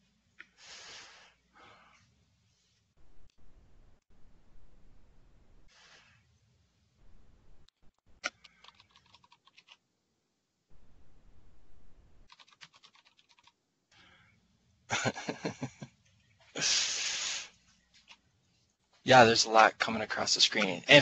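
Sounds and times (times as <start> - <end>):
keyboard typing: 8.2 - 9.8, 12.3 - 13.6.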